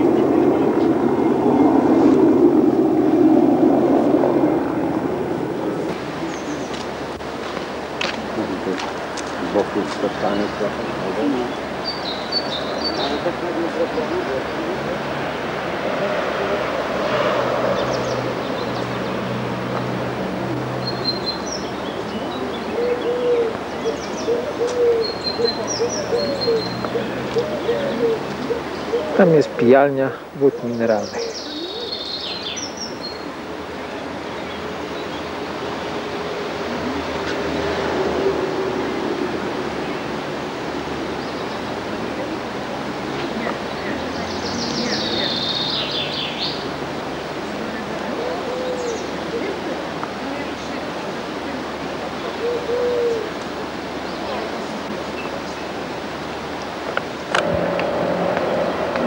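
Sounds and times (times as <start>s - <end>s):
steady outdoor background noise: 0.0s - 59.0s
small birds chirping: 5.8s - 14.9s, 17.0s - 36.0s, 43.1s - 47.5s
bird cooing: 22.0s - 29.6s, 30.4s - 32.2s, 47.7s - 51.0s, 52.2s - 53.4s.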